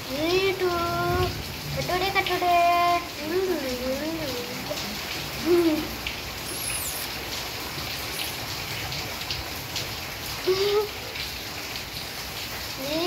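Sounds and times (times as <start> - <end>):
rain hissing: 0.1 - 13.0
high falling squeak: 6.4 - 7.2, 7.9 - 8.5
short vocal sound: 6.4 - 7.2.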